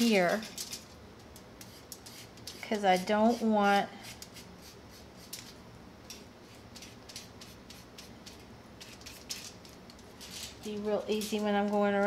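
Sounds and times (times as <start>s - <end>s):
paintbrush scratching on wood: 1.6s - 5.4s.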